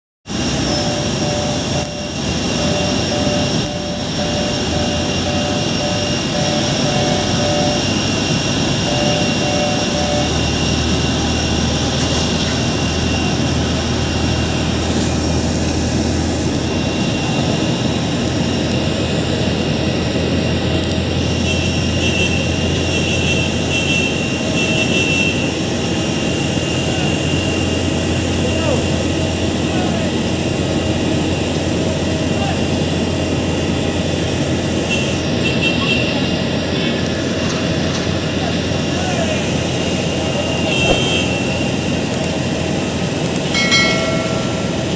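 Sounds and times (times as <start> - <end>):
deeper hum: 0.3 - 18.5, 40.6 - 42.1
jet engine whine and rumble: 0.3 - 44.9
repeating two-note tone: 0.5 - 10.9.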